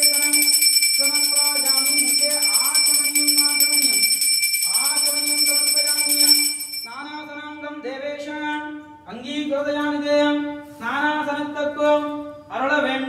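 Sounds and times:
person chanting: 0.0 - 6.4
hand bell ringing: 0.0 - 7.2.

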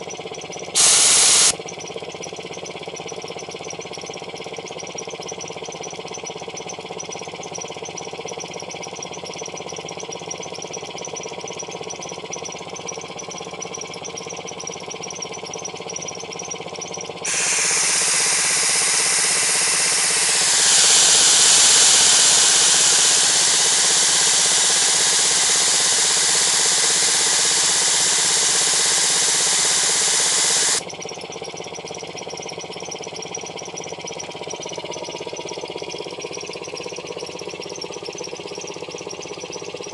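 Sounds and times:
air compressor running: 0.0 - 39.9
compressed air hissing: 0.8 - 1.6, 17.3 - 30.8.

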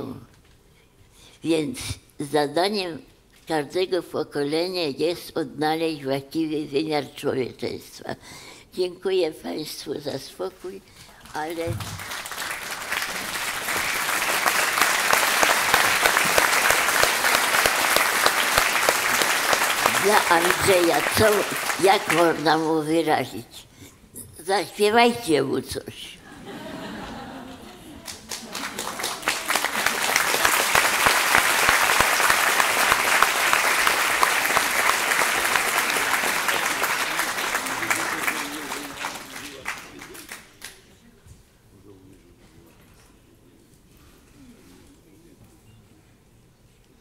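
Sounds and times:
audience applauding: 11.3 - 22.7, 26.9 - 40.8.

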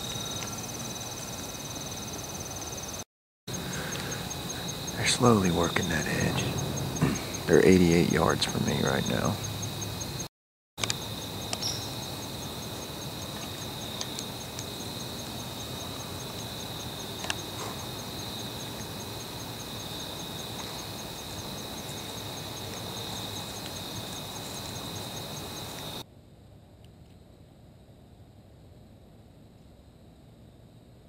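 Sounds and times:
steady hiss: 3.5 - 9.5.

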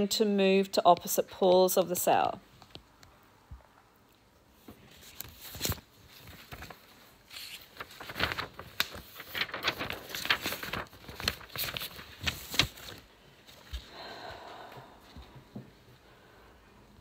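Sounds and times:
rustling and crinkling: 4.6 - 14.0.

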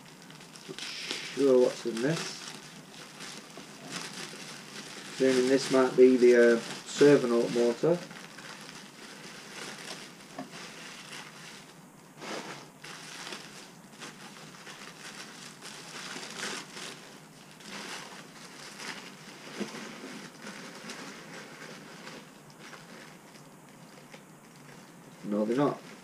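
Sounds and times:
plastic packaging crinkling: 0.0 - 26.0.

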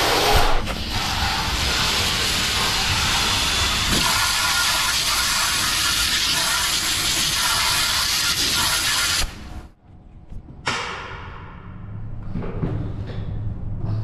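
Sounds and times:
water jet spraying on metal: 0.9 - 9.2.

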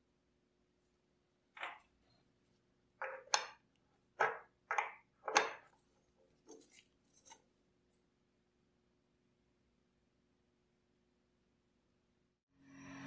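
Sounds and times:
metal parts clacking on wooden table: 3.0 - 3.6.

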